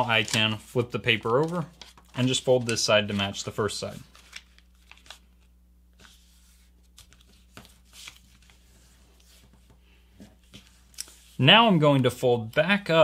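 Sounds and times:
paper being folded: 0.0 - 9.7.

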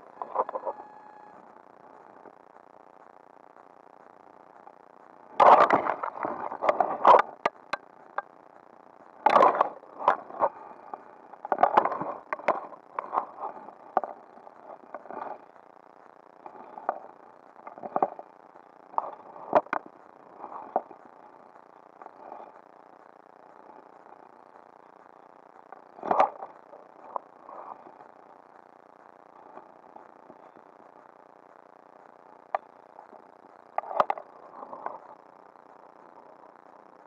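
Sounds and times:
sharp clicks: 5.3 - 8.3.

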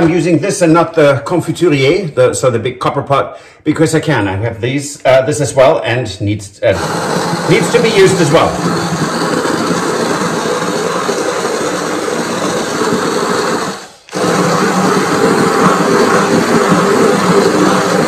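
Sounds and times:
immersion blender running: 6.6 - 18.0.

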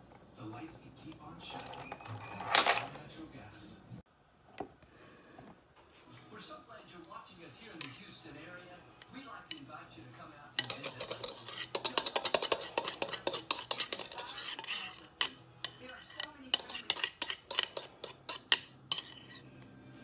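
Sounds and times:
spoon taps: 10.6 - 19.3
metal spoon scraping cup: 10.6 - 19.8.

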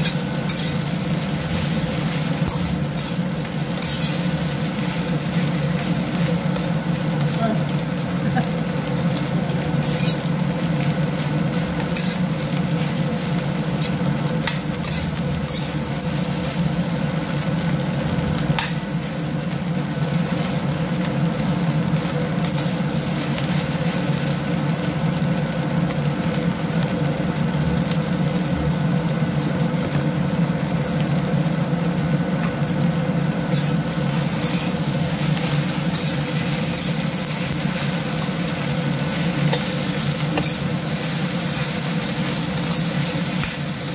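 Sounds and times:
metal spatula scraping a wok: 0.0 - 6.8, 7.7 - 11.0, 11.8 - 13.0, 13.7 - 16.6, 22.4 - 22.9, 33.5 - 43.9
rice sizzling in a wok: 0.0 - 43.9.

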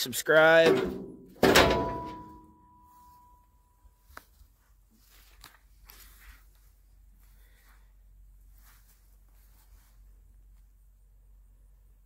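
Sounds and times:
metal hood slamming shut: 0.6 - 2.5
faint handling noise: 2.0 - 10.9.

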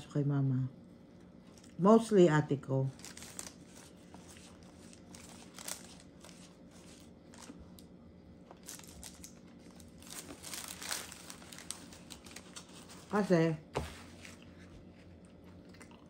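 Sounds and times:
paper crackles: 2.9 - 7.9, 8.5 - 15.2
paper wrappers crinkling: 2.9 - 7.9, 8.5 - 13.5.

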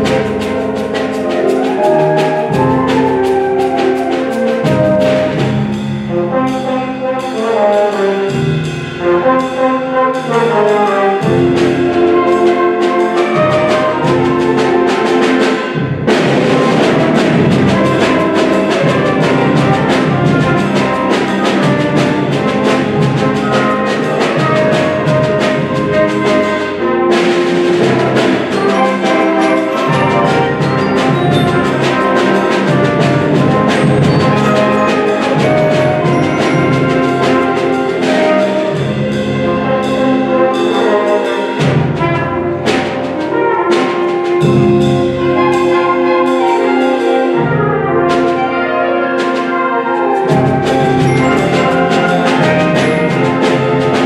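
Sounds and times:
concert band playing: 0.0 - 54.0.

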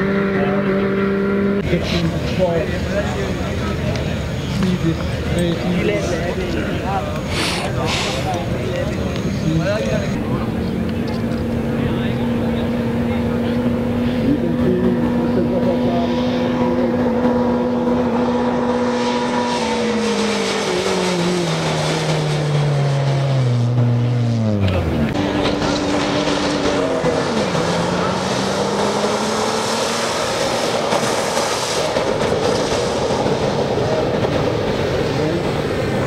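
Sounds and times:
rally car engines passing: 0.0 - 36.0
steady rushing noise: 24.6 - 36.0.

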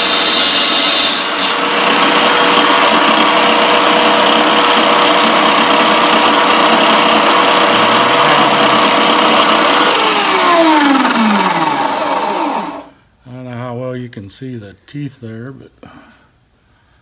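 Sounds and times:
tile saw motor whine: 0.6 - 12.9.

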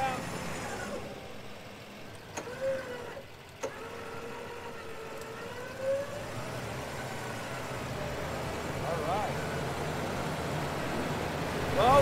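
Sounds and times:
truck engine running: 0.0 - 12.0.

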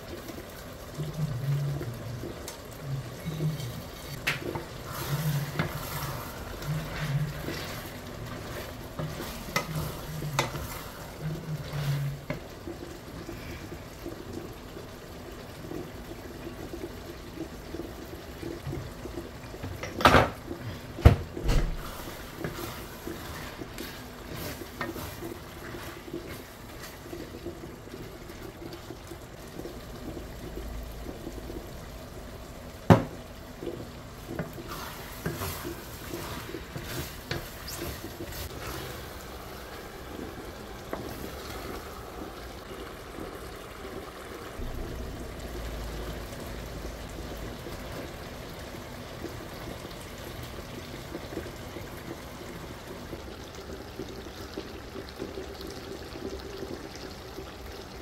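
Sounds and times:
wooden spatula stirring stew: 0.0 - 44.0.

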